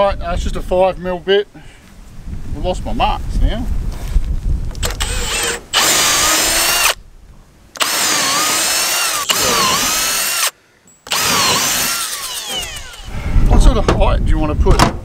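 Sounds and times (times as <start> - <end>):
cordless drill whining into wood: 4.8 - 7.0, 7.8 - 13.2.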